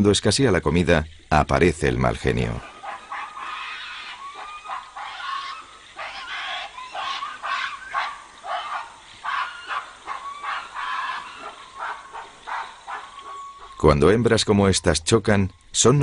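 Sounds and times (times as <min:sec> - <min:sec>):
gorillas screaming: 0:02.6 - 0:13.8.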